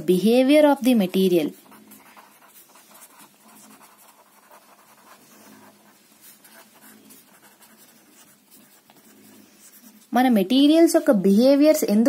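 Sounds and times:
pen scratching on paper: 0:01.1 - 0:10.2.

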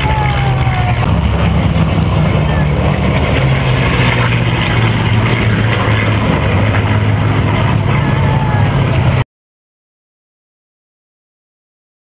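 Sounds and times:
propeller planes flying past: 0:00.0 - 0:09.2.

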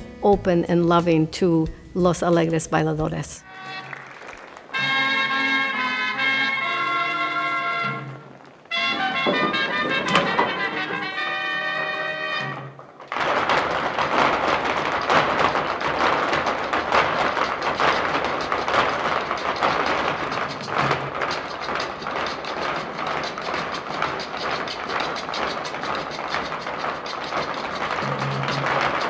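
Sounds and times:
shoes stamping on wooden boxes: 0:03.7 - 0:29.0.

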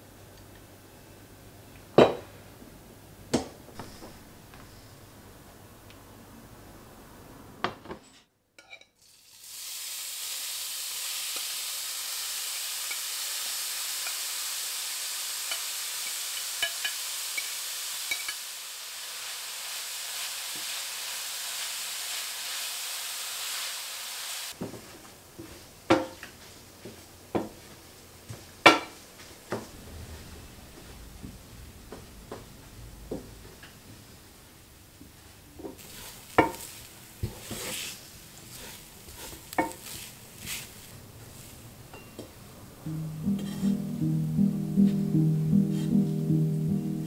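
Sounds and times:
rice sizzling in a frying pan: 0:09.0 - 0:29.6, 0:35.2 - 0:41.6.

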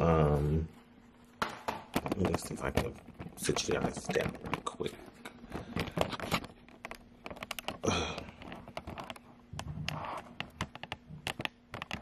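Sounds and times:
phone handling taps and rubbing: 0:08.4 - 0:12.0.

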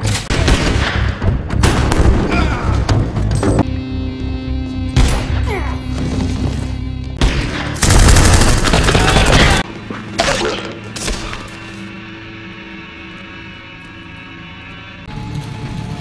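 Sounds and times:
gunshots: 0:00.0 - 0:02.6, 0:07.2 - 0:09.6
tense music score: 0:00.0 - 0:16.0
rapid gunfire volley: 0:07.2 - 0:09.6.

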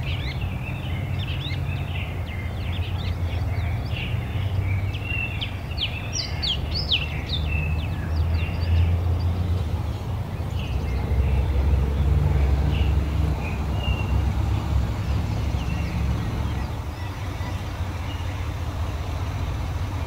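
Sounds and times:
birds chirping: 0:00.0 - 0:20.0
low steady rumble: 0:07.8 - 0:20.0.

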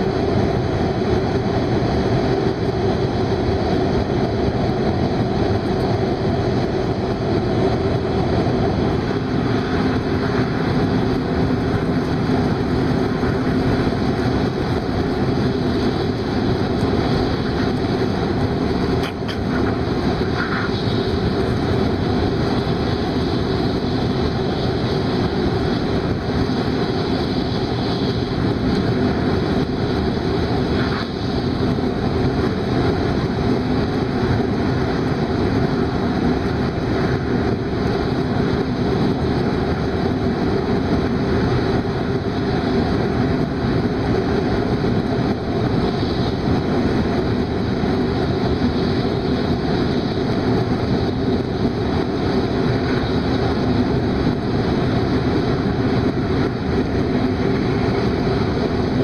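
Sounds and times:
train running at speed: 0:00.0 - 0:59.0.

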